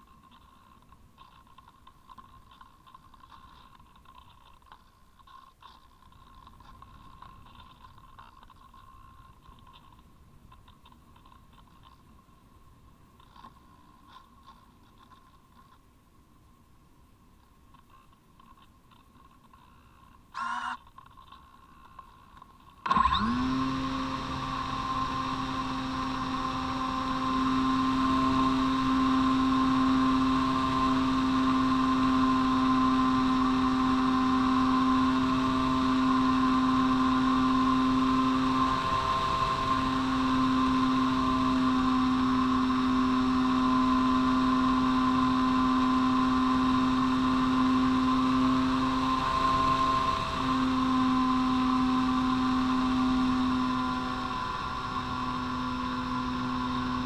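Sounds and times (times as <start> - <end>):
electric motor and propeller hum: 0.0 - 12.4, 17.7 - 57.0
brief tone: 20.4 - 20.8.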